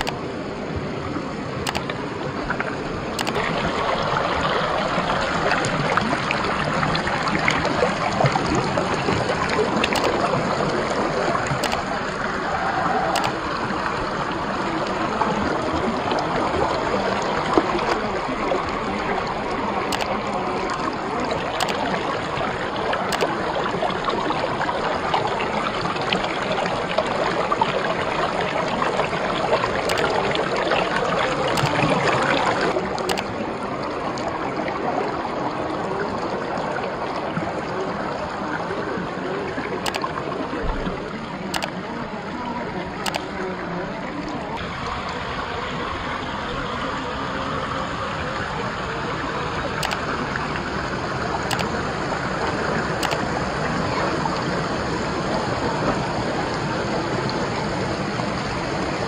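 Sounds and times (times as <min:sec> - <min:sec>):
faint sharp clicks: 0:00.0 - 0:00.2, 0:01.6 - 0:02.0, 0:03.2 - 0:03.5, 0:09.8 - 0:10.3, 0:11.5 - 0:11.9, 0:13.1 - 0:13.4, 0:19.9 - 0:20.1, 0:21.4 - 0:21.8, 0:23.1 - 0:23.3, 0:29.9 - 0:30.1, 0:31.6 - 0:31.8, 0:33.0 - 0:33.3, 0:39.9 - 0:40.1, 0:41.6 - 0:41.8, 0:43.0 - 0:43.3, 0:49.8 - 0:50.0, 0:51.5 - 0:51.7, 0:53.0 - 0:53.2
stream water rushing over rocks: 0:00.0 - 0:59.0.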